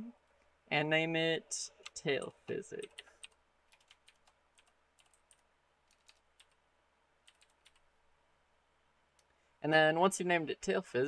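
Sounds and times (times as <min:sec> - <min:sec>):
keyboard keystrokes: 0:02.8 - 0:06.6, 0:07.3 - 0:07.8.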